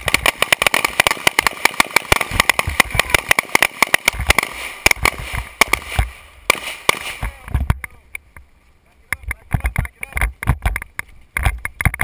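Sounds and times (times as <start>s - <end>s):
rapid gunfire: 0.0s - 7.4s.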